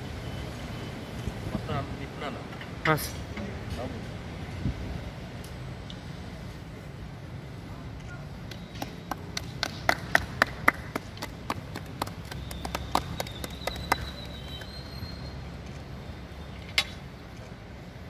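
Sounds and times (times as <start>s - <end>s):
people clapping in rhythm: 8.4s - 14.9s.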